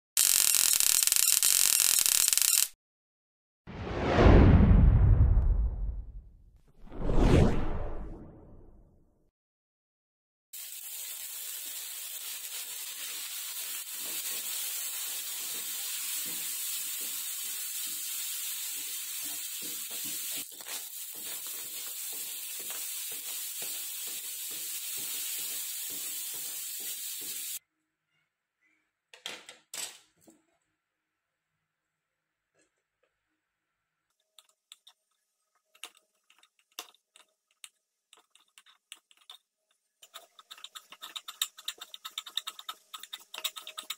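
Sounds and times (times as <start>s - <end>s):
rice sizzling in a wok: 10.5s - 27.6s.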